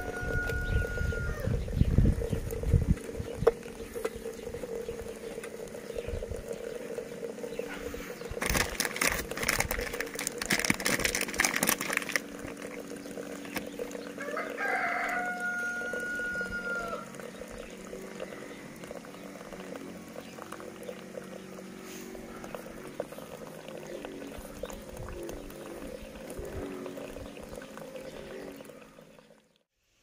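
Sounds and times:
long held chicken call: 0.0s - 1.6s, 14.1s - 17.2s.

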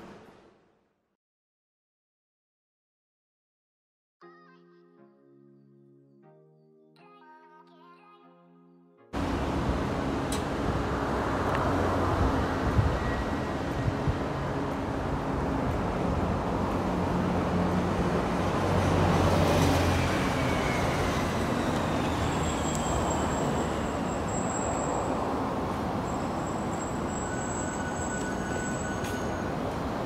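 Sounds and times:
busy road traffic: 9.2s - 30.0s.

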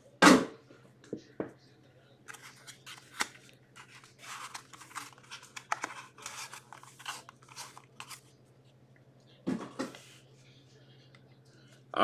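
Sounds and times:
cards being handled: 2.3s - 8.3s.

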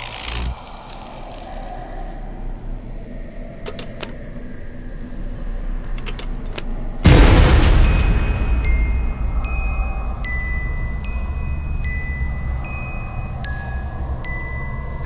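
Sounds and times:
low rumbling drone: 4.2s - 15.0s
loud noisy hit: 7.0s - 11.8s.

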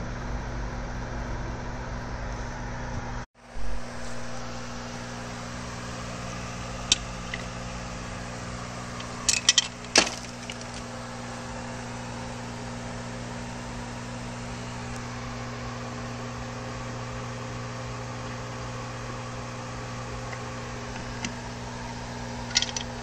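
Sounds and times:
background hum: 0.0s - 23.0s
metallic clinks: 22.5s - 23.0s.

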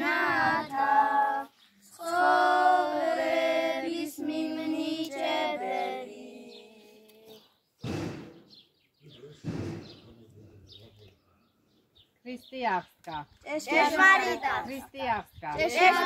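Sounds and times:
children singing a chant: 0.0s - 7.4s, 13.7s - 14.7s, 15.6s - 16.0s.

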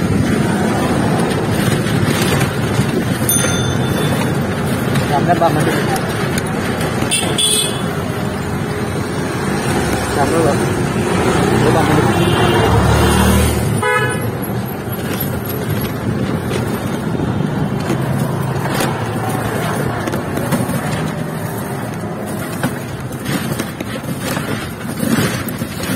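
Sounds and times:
knocks and rattles: 0.0s - 25.9s
steady street rumble: 0.0s - 25.9s
vehicle horn honking: 7.1s - 8.0s, 12.0s - 13.1s, 13.8s - 14.3s.

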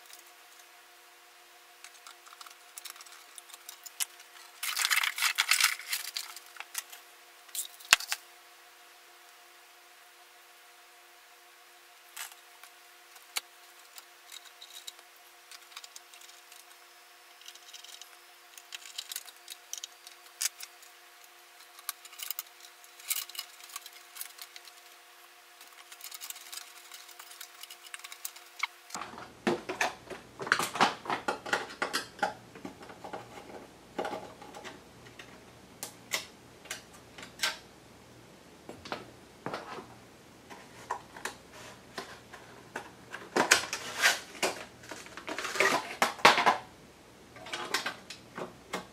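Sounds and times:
metal clicks and rattles: 13.2s - 25.0s, 25.6s - 29.1s.

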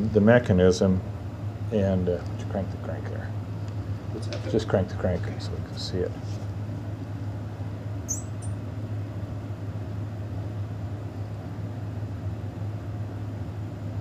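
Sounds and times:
steady low hum: 0.0s - 14.0s
short high squeaks: 8.1s - 8.6s.

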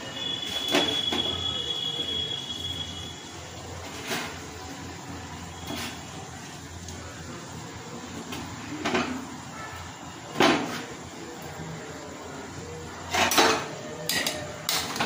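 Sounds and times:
utensils knocking against metal pan: 13.2s - 15.0s.

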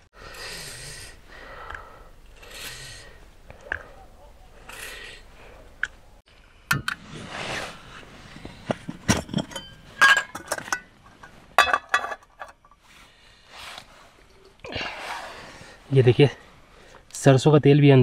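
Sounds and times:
camping cookware clinking: 8.6s - 12.9s.

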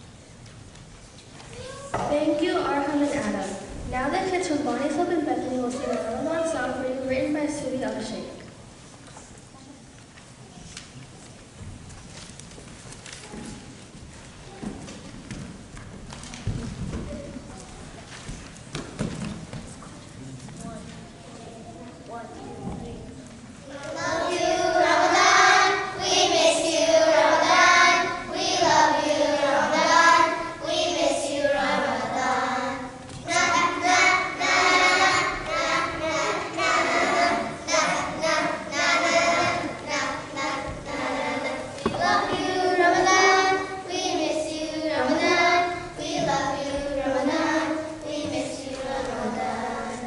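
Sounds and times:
children singing in unison: 23.7s - 50.0s.

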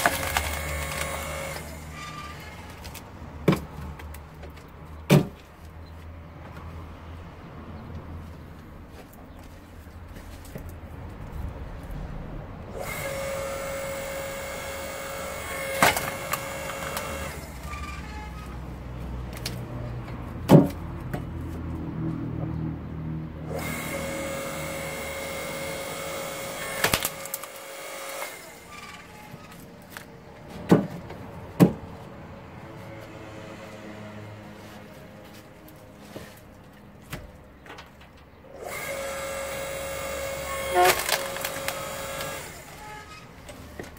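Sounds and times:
wood cracking as it splits: 0.0s - 1.8s, 12.8s - 17.5s, 25.2s - 28.5s, 39.5s - 42.6s
log splitter motor whining: 0.0s - 3.0s, 12.7s - 18.6s, 23.5s - 30.0s, 38.5s - 43.9s.

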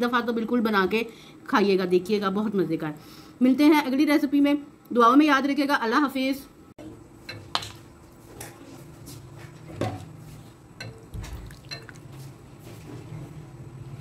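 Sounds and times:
utensil clinking against dish: 11.6s - 12.0s.

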